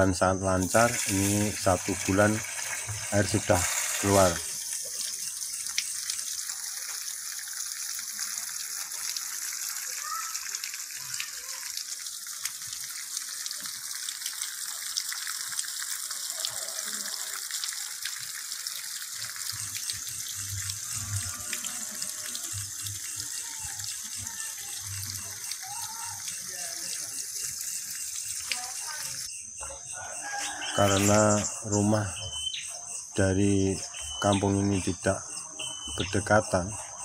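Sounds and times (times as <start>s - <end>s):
water pouring from a pipe: 0.0s - 29.3s, 29.9s - 37.0s
water splashing on stones: 0.6s - 29.3s.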